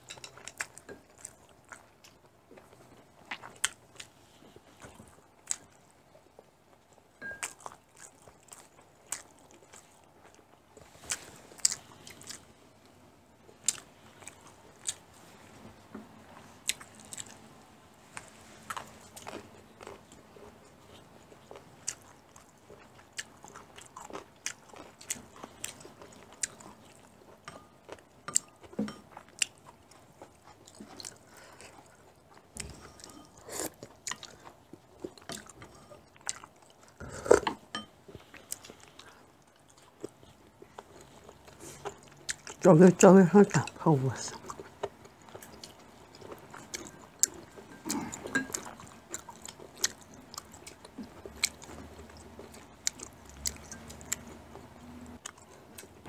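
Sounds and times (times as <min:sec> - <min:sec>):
chopsticks clicking on dishes: 0:00.0 - 0:01.0
chewing and mouth noises: 0:00.0 - 0:56.0.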